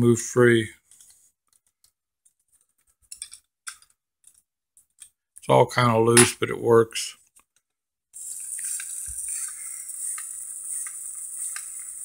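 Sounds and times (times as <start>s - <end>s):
small motor whirring: 8.2s - 12.0s.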